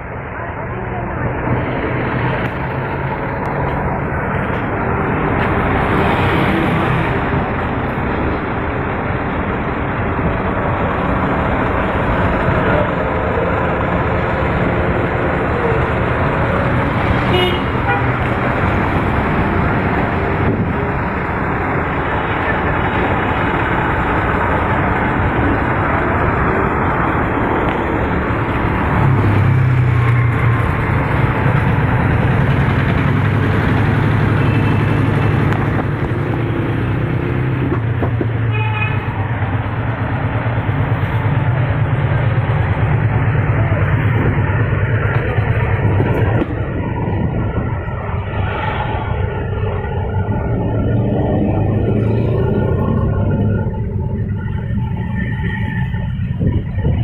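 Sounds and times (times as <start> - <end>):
street traffic: 0.0 - 57.0
vehicle horn toot: 17.3 - 18.2, 38.5 - 39.1
deep engine hum: 39.1 - 57.0.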